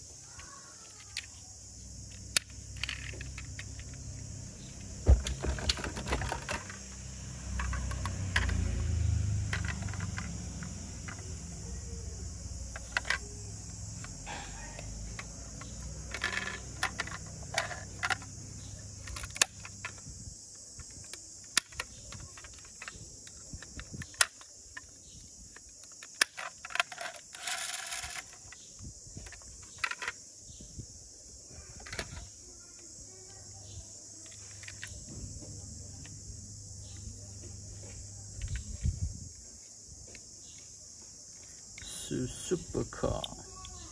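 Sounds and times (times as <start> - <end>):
toy car doors clicking: 0.3 - 1.5, 2.1 - 11.7, 12.4 - 20.1, 20.8 - 30.2, 31.7 - 32.4, 34.1 - 35.1
metal toy cars clicking: 0.3 - 30.2, 34.1 - 35.1, 41.4 - 43.9.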